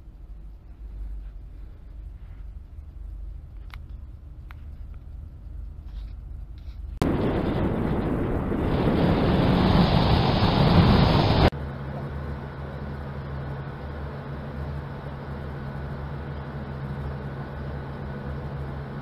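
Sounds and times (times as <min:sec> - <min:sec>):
loud rushing noise: 0:07.0 - 0:11.5
water rushing along hull: 0:07.1 - 0:11.5.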